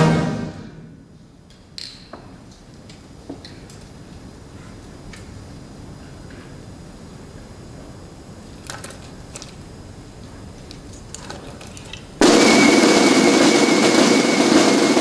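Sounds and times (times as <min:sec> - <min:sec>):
snare drum roll: 0:00.0 - 0:00.9, 0:12.2 - 0:15.0.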